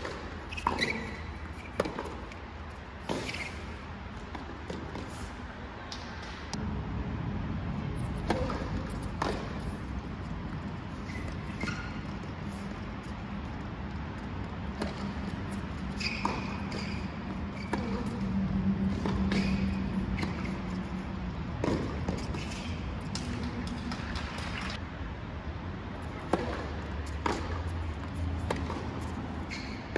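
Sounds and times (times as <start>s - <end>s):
tennis ball struck with rackets: 0.0s - 2.4s, 8.0s - 9.9s, 14.7s - 20.6s, 21.6s - 24.5s, 26.2s - 27.6s, 28.4s - 29.0s.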